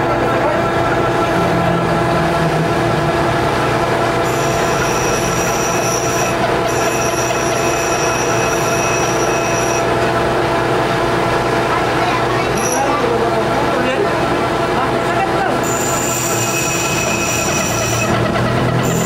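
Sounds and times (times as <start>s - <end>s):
metal lathe running: 0.0s - 19.0s
high-pitched squeal: 0.5s - 10.0s, 12.4s - 13.2s, 15.6s - 19.0s.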